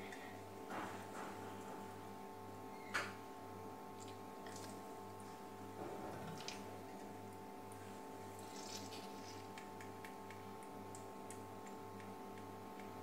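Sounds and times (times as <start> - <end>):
wet squelches of squeezing: 3.9 - 5.4, 6.2 - 11.4.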